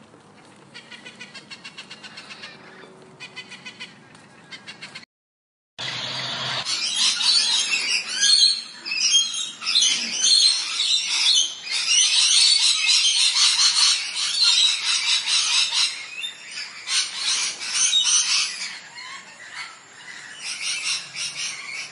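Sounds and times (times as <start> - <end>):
parrots chirping and squawking: 0.7 - 5.0, 5.8 - 21.9.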